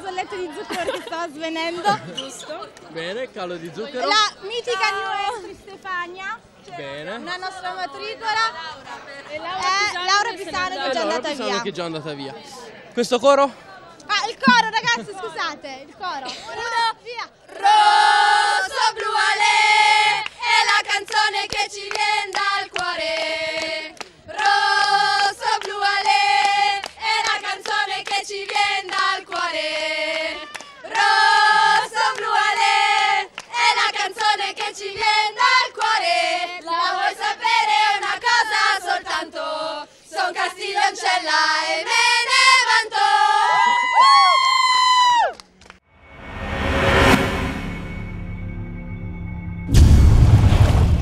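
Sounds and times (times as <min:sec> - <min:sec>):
women chanting together: 0:17.5 - 0:43.8.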